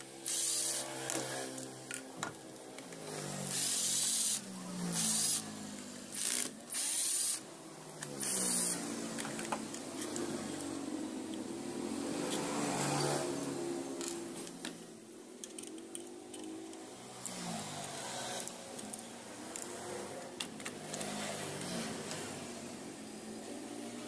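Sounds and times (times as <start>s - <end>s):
cordless drill bursts: 0.2s - 0.9s, 3.5s - 5.5s, 6.1s - 7.5s, 8.2s - 8.8s.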